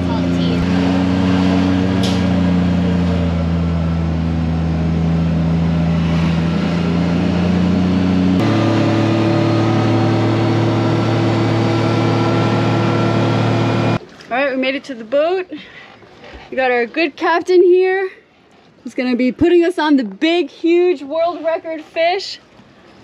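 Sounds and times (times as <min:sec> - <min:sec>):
road noise: 0:00.0 - 0:14.0
vehicle engine hum: 0:00.0 - 0:14.0.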